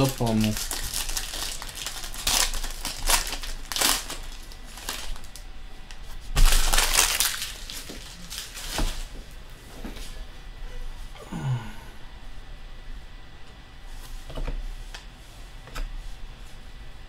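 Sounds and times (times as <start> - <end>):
foil wrapper tearing and crinkling: 0.0 - 5.4, 6.4 - 9.1.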